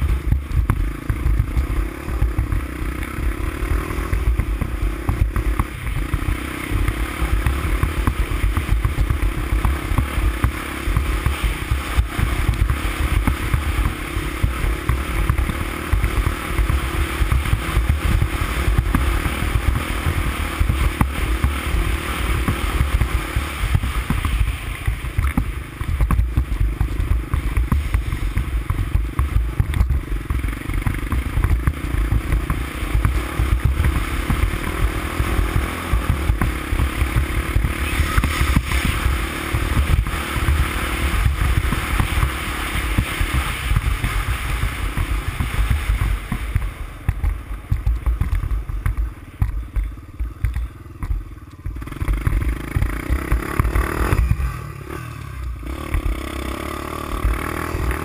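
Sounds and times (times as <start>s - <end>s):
wind rumble on microphone: 0.0s - 56.4s
atv engine running: 0.0s - 58.0s.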